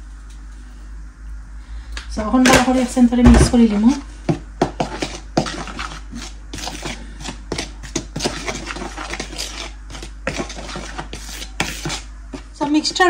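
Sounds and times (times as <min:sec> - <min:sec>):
metal spoon scraping in plastic bowl: 0:04.8 - 0:13.0.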